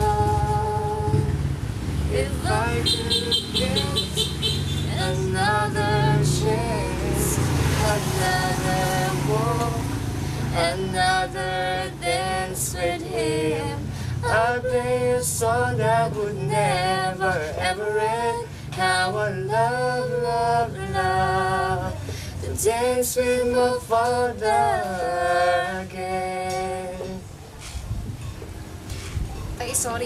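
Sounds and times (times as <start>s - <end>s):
person singing slow song: 0.0s - 27.3s.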